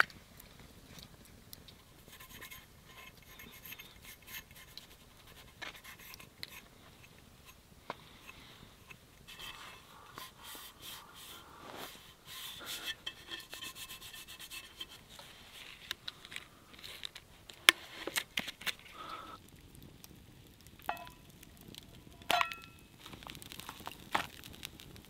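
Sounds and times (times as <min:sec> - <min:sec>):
scraping on axe head: 0:02.1 - 0:07.6, 0:08.2 - 0:15.8.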